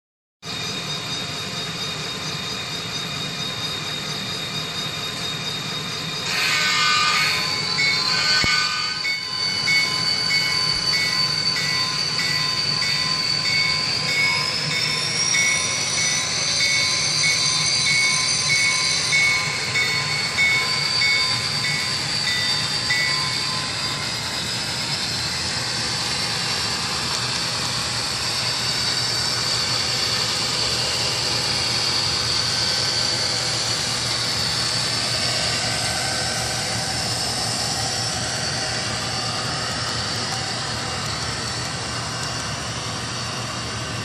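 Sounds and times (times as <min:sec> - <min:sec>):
diesel locomotive engine sound: 0:00.4 - 0:44.0
high whine rising in pitch: 0:00.5 - 0:44.0
locomotive horn blast: 0:08.1 - 0:09.0.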